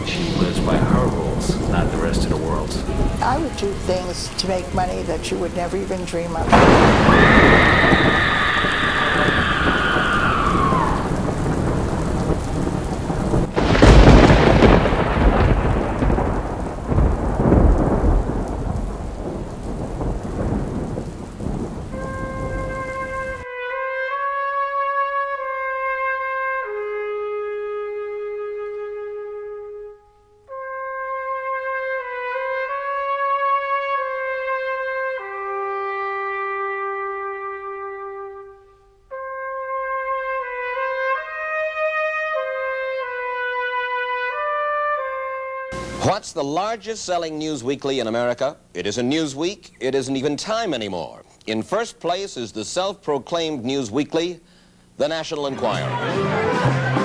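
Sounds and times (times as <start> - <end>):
slow solo trumpet melody: 0.0 - 18.7, 21.8 - 46.2, 55.4 - 57.0
thunder clap: 0.0 - 23.5, 45.7 - 46.3
heavy rain: 0.0 - 23.6, 45.7 - 47.3, 54.6 - 57.0
falling wail: 6.5 - 11.8, 55.4 - 57.0.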